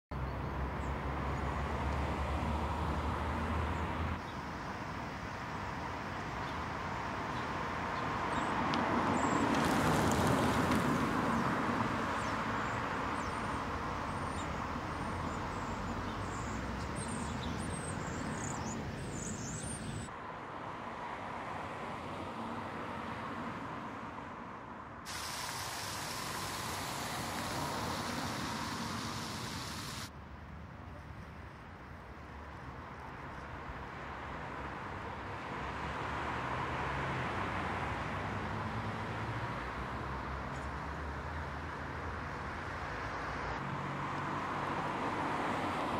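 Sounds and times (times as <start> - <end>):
birds chirping: 12.1 - 20.1, 25.1 - 30.1
fountain splashing: 25.1 - 30.1.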